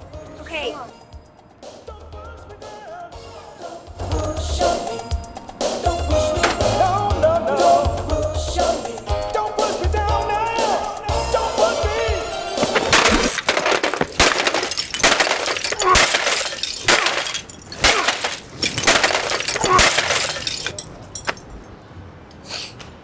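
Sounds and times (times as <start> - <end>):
plastic cracking: 12.6 - 20.4
hard blows smashing plastic: 12.6 - 20.9
pieces clattering: 12.6 - 21.7.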